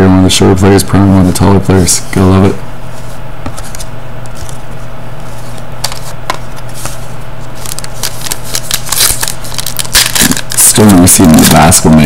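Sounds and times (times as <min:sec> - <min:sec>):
steady low hum: 0:00.0 - 0:12.0
plastic wrapper crinkling: 0:05.5 - 0:11.8.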